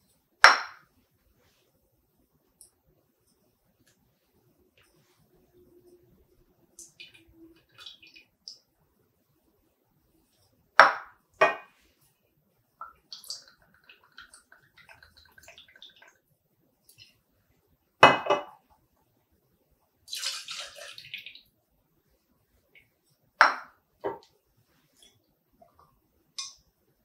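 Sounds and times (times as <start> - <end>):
liquid pouring into metal cup: 20.1 - 21.1.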